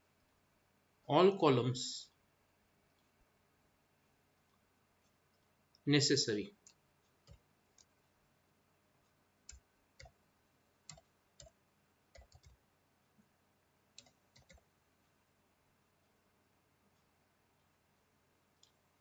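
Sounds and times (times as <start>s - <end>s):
computer keyboard key clicks: 14.0s - 14.6s.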